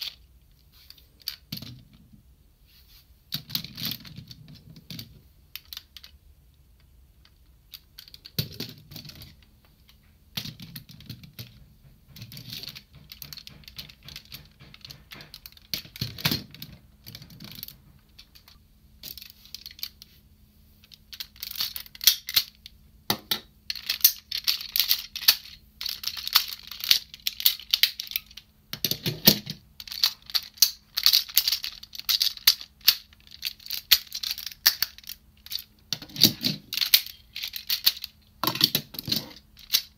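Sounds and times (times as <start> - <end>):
plastic toy clicking and snapping: 20.9 - 39.9.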